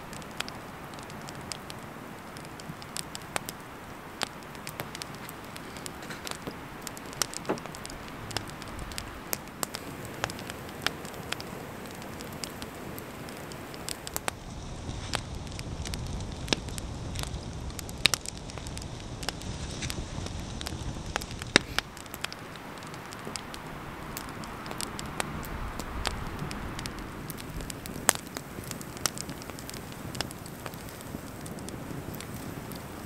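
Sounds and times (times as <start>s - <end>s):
campfire crackling and popping: 0.0s - 33.0s.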